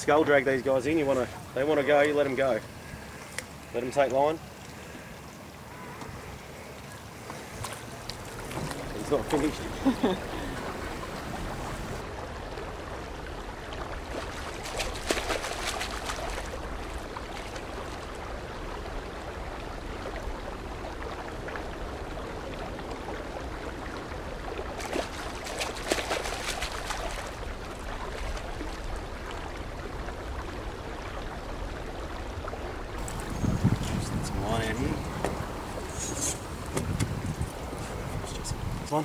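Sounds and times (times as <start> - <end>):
water washing: 5.7 - 31.6, 32.9 - 39.0
fish thrashing at surface: 14.2 - 17.8, 24.8 - 27.4.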